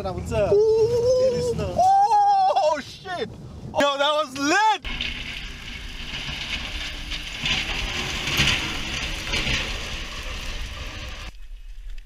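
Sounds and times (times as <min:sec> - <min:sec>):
plow and tyres hissing through slush: 0:04.9 - 0:11.4
low engine rumble: 0:04.9 - 0:12.0.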